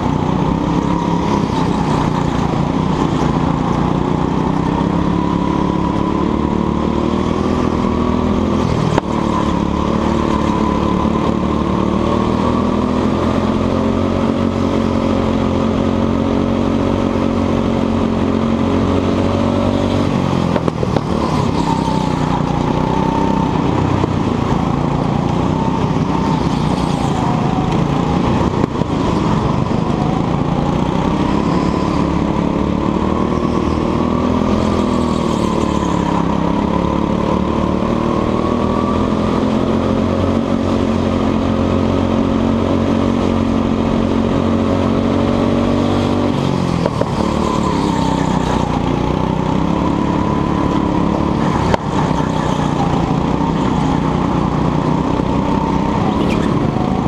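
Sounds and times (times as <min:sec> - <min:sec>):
go-kart engine revving: 0:00.0 - 0:57.0.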